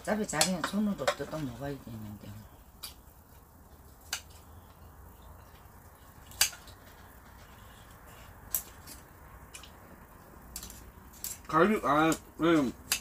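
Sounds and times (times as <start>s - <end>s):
scissors and tongs clicking: 6.3s - 6.7s, 10.5s - 13.0s.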